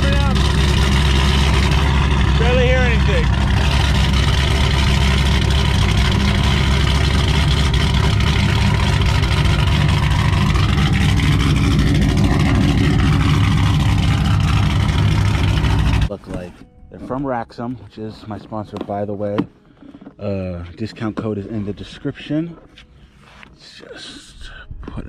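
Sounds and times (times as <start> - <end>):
car engine running loudly: 0.0 - 16.5.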